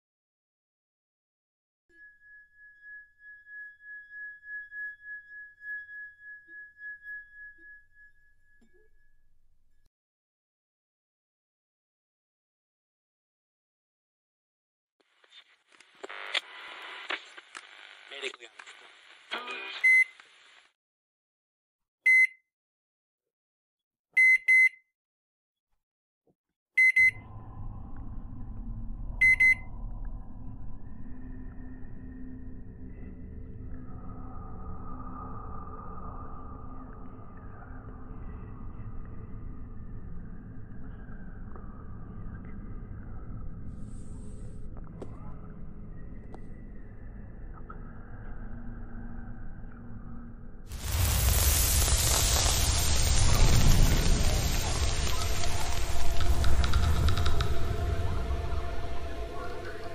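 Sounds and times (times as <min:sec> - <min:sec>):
high steady ringing tone: 0:01.9 - 0:09.8, 0:26.8 - 0:44.7
low dark ambient drone: 0:27.1 - 0:59.9
electronic double beeps: 0:29.2 - 0:29.7.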